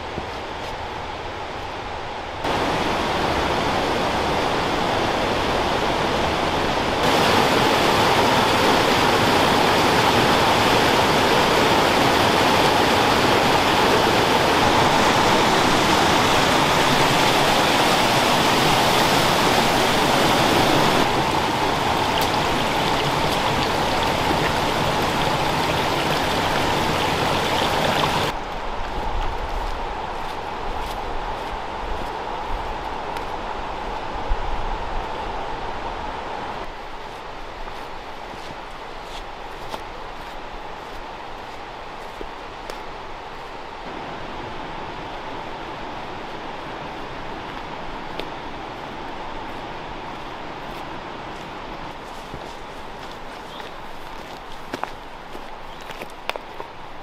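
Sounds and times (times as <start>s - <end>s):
whitewater rushing in creek: 2.4s - 28.4s.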